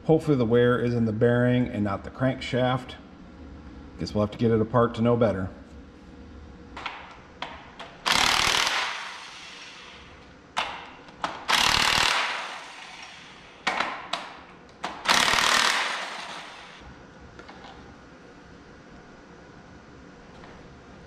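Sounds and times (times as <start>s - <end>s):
impact wrench hammering: 6.8s - 16.8s.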